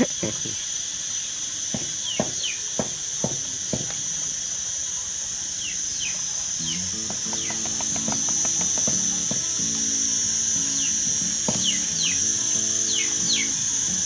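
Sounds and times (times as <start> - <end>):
high-pitched insect drone: 0.0 - 14.0
background music: 6.6 - 14.0.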